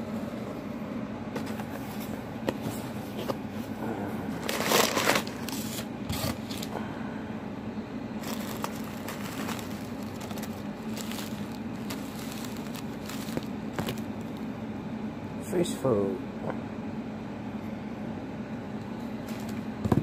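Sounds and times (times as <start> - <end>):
packing paper rustling: 4.4 - 6.7, 8.2 - 14.4
low hum: 6.4 - 15.4.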